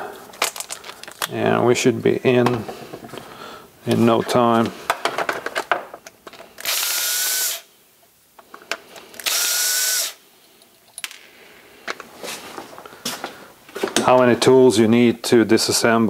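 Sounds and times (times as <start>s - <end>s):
cordless drill whine: 6.6s - 7.7s, 9.2s - 10.2s.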